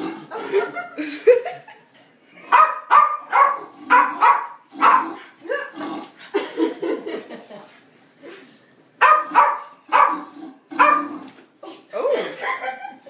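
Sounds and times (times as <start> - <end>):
small dog barking: 2.5 - 5.2, 9.0 - 10.2, 10.8 - 11.1.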